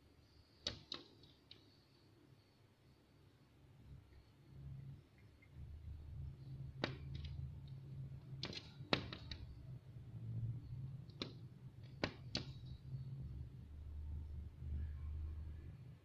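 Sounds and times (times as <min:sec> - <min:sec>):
bird beak tapping on glass: 0:06.8 - 0:07.4, 0:08.4 - 0:09.5, 0:11.1 - 0:12.7.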